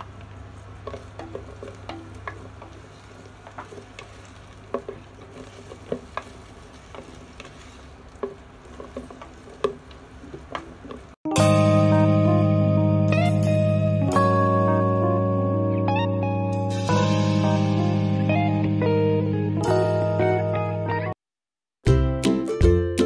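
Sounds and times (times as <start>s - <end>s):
oil sizzling: 0.0s - 11.2s.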